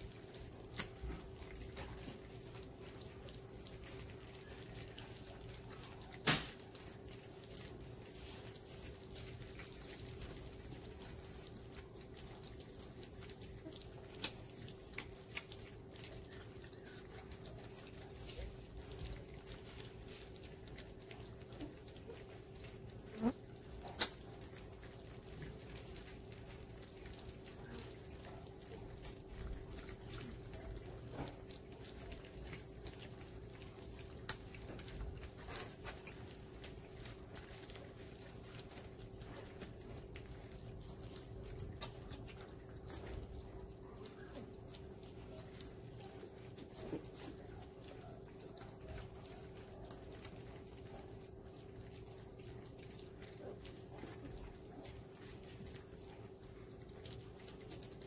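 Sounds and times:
puppies lapping and chewing: 0.0 - 58.0.

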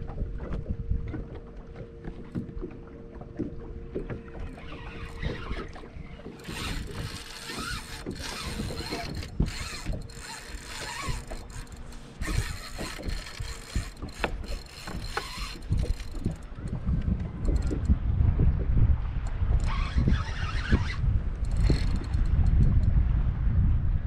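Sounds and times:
fishing reel whirring and clicking: 4.2 - 18.0, 19.2 - 22.9.

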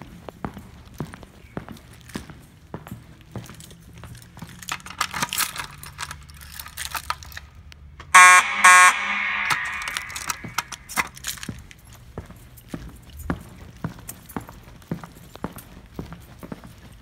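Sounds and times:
fire alarm horn blasts: 8.1 - 10.9.

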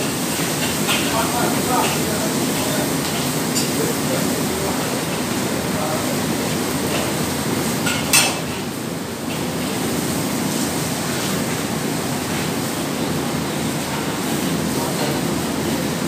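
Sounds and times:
squid stir-frying in a wok: 0.0 - 1.1.

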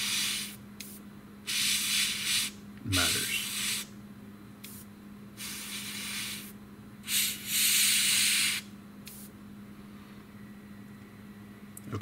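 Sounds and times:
airbrush spraying hiss: 0.0 - 3.9, 4.6 - 9.3
steady low hum: 0.0 - 12.0.

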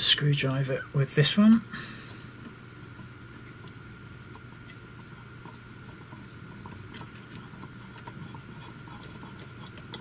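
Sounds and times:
steady low hum: 0.0 - 10.0
screwdriver ticking and scraping: 3.6 - 10.0.

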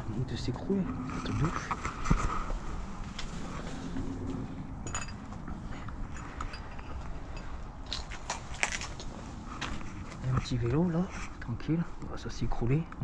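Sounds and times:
debris clinking underfoot: 4.2 - 10.8
footsteps on rubble: 7.0 - 10.8.

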